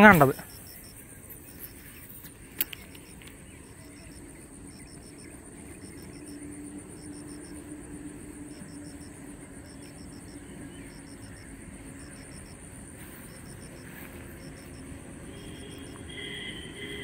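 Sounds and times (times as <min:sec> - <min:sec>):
high insect buzz: 0:00.0 - 0:17.0.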